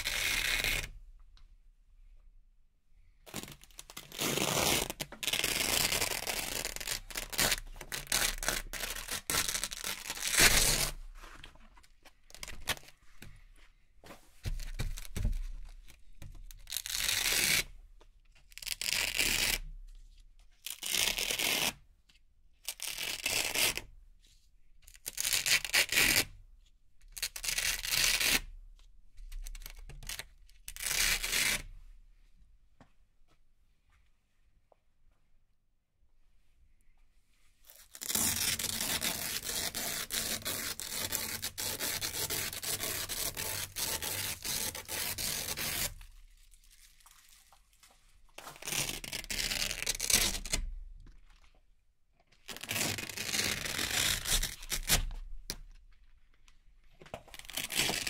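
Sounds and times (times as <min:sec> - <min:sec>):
velcro ripping: 0:00.0 - 0:00.9, 0:03.3 - 0:11.0, 0:16.6 - 0:17.7, 0:18.6 - 0:19.6, 0:20.7 - 0:21.8, 0:22.7 - 0:23.8, 0:25.0 - 0:26.3, 0:27.2 - 0:28.5, 0:29.4 - 0:31.7, 0:37.7 - 0:47.6, 0:48.4 - 0:50.7, 0:52.4 - 0:55.2, 0:57.3 - 0:58.0.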